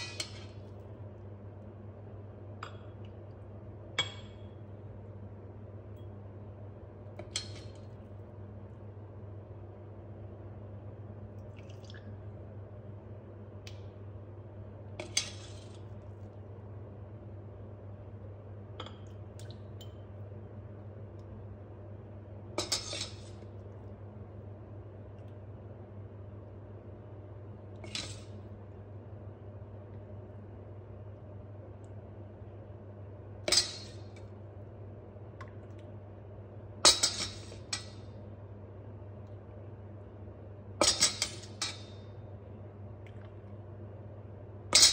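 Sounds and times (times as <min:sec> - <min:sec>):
steady low hum: 0:00.0 - 0:44.9
liquid splashing and dripping: 0:11.4 - 0:12.2
ladle clinking against metal bowl: 0:36.9 - 0:38.0.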